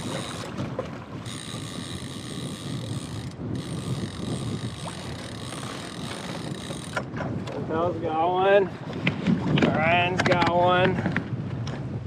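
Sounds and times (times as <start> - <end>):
fishing reel ratcheting whir: 0.0 - 0.5, 1.2 - 7.1.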